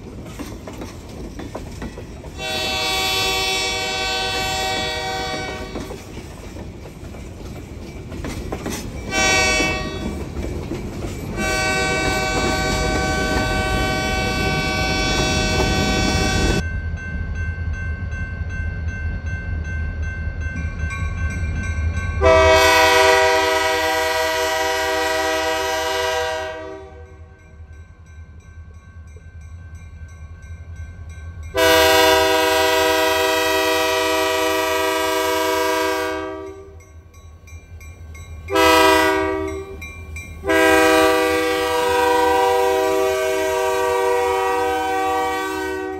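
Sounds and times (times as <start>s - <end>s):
locomotive air horn blasts: 2.4s - 5.9s, 9.1s - 10.2s, 11.4s - 16.6s, 22.2s - 27.3s, 31.6s - 36.8s, 38.5s - 39.8s, 40.4s - 45.9s.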